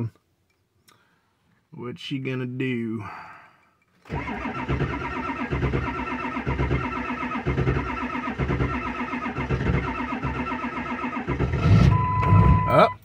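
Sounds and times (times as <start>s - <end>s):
starter cranking diesel engine: 4.1s - 12.8s.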